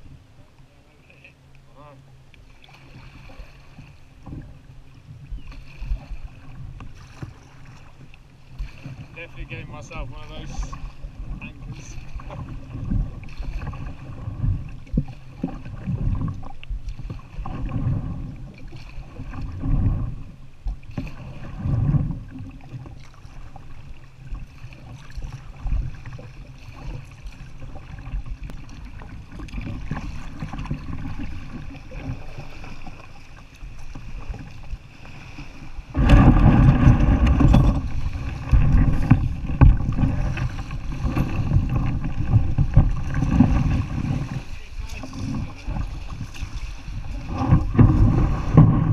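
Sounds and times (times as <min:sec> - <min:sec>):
water sloshing at kayak hull: 0:00.0 - 0:48.9
wind on microphone: 0:24.4 - 0:48.9
waves washing onto shingle: 0:24.7 - 0:48.9.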